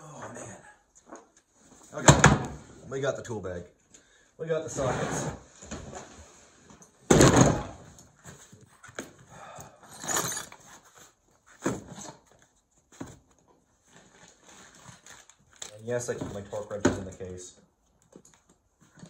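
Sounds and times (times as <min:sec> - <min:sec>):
tools clattering: 0:09.8 - 0:10.9.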